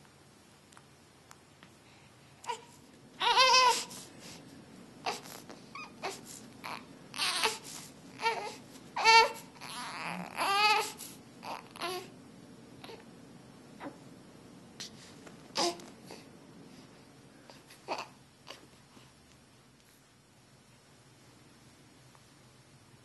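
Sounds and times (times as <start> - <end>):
baby crying and whimpering: 2.5 - 4.0, 5.0 - 12.1, 15.6 - 16.2.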